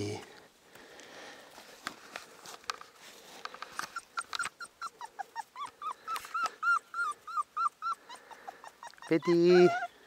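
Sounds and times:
puppy whimpering: 0:03.8 - 0:10.0.

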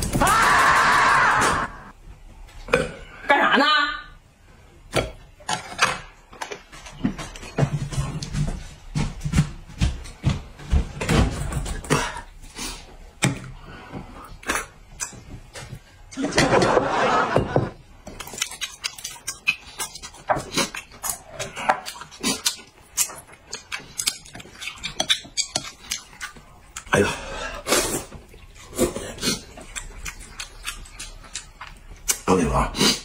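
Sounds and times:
chewing: 0:18.1 - 0:27.0, 0:27.7 - 0:32.2.

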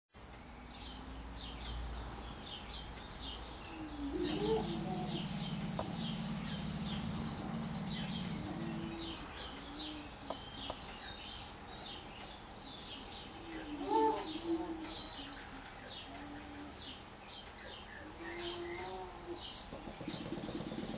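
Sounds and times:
small songbirds chattering: 0:00.2 - 0:20.9
prairie-chickens booming and whooping: 0:03.8 - 0:10.1.

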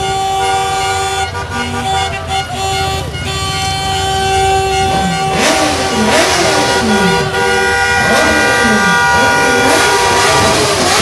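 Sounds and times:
vehicle horns honking: 0:00.0 - 0:11.0
crowd shouting: 0:05.0 - 0:11.0.

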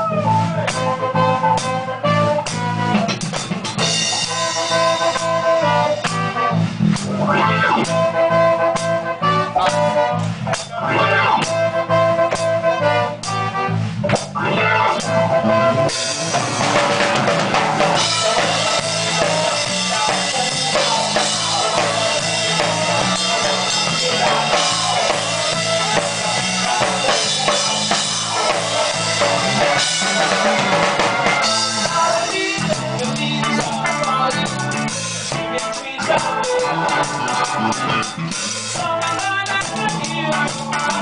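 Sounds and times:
drums with snare and rimshots: 0:00.0 - 0:41.0
ska band playing live: 0:00.0 - 0:41.0.

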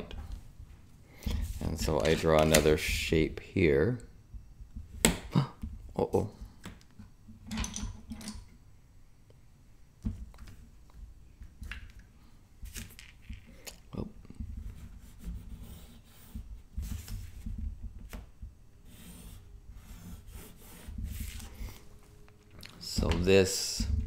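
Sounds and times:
pencil scratching on paper: 0:14.6 - 0:17.0, 0:18.8 - 0:21.8.

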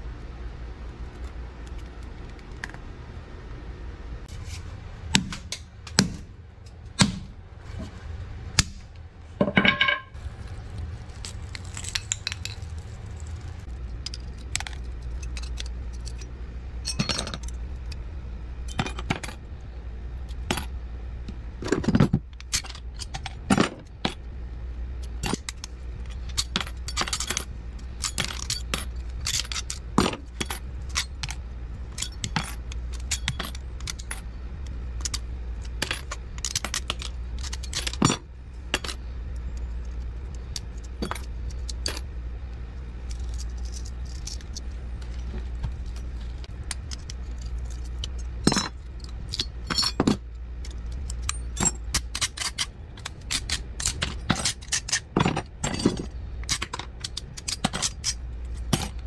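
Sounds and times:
steady low hum: 0:00.0 - 0:59.0
metal parts clinking on tray: 0:09.4 - 0:10.2, 0:13.9 - 0:17.6, 0:25.0 - 0:34.2, 0:35.0 - 0:39.0, 0:39.8 - 0:42.0, 0:43.0 - 0:59.0.

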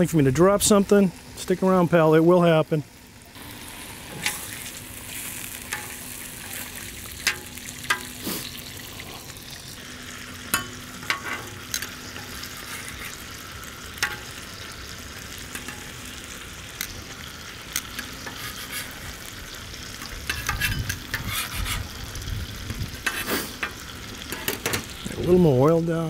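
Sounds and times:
food sizzling on griddle: 0:00.0 - 0:26.0
spatula clicking on griddle: 0:14.0 - 0:14.4, 0:15.5 - 0:16.0, 0:17.7 - 0:18.9, 0:20.2 - 0:21.8.

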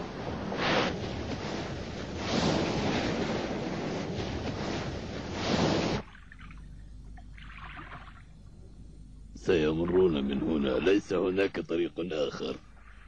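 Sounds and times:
crashing waves: 0:00.0 - 0:06.0
wind: 0:00.0 - 0:09.0.

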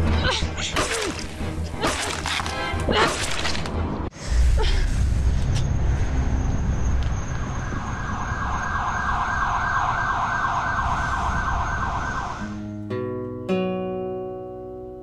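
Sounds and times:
low rumble: 0:04.1 - 0:12.5
emergency vehicle siren wavering: 0:06.3 - 0:12.6.

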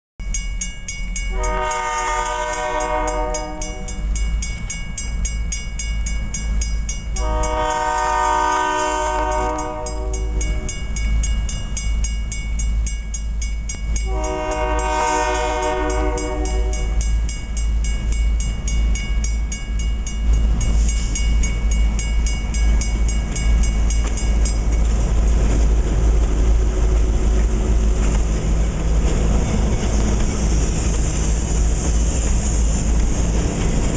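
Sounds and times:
locomotive air horn blasts: 0:01.3 - 0:04.0, 0:07.2 - 0:10.7, 0:14.0 - 0:17.0
diesel engine rumble: 0:21.6 - 0:33.9.

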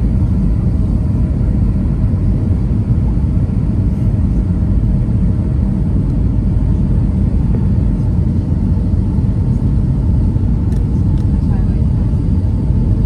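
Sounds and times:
jet engines rumbling in cabin: 0:00.0 - 0:13.0.

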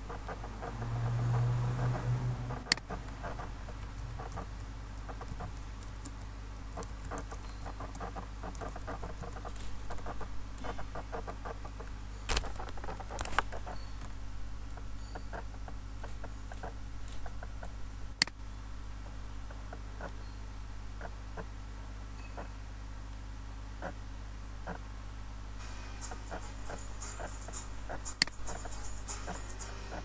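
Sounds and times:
low electrical hum: 0:00.0 - 0:30.0
computer keyboard typing: 0:02.6 - 0:09.5.

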